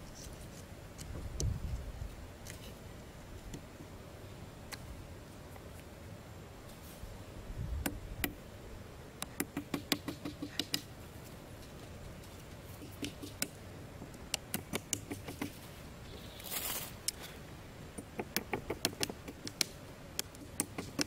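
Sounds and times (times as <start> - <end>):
hatchet chipping wooden stick: 9.2 - 10.9, 12.8 - 13.6, 14.3 - 15.6, 18.0 - 21.0.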